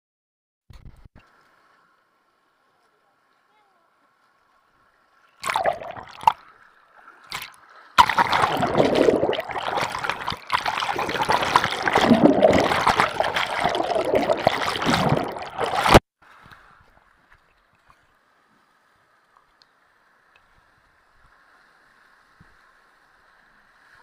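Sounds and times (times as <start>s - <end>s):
river water splashing and gurgling: 4.1s - 17.3s.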